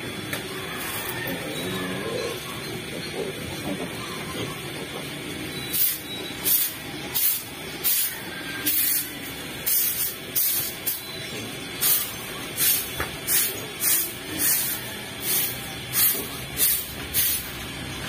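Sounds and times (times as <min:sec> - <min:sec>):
tool scraping concrete floor: 0:11.9 - 0:17.5.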